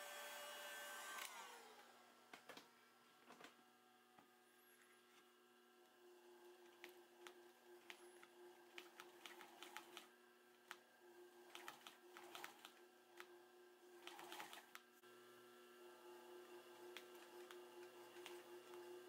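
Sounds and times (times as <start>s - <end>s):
motor hum: 0.0s - 19.0s
sewing machine stitching: 6.7s - 10.1s, 11.4s - 13.3s, 14.0s - 14.8s.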